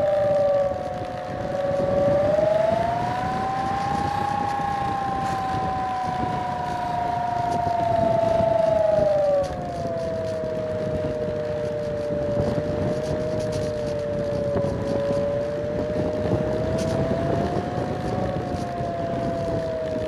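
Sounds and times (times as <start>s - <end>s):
electric motor and propeller whining: 0.0s - 20.0s
wind rushing over microphone: 0.0s - 20.0s.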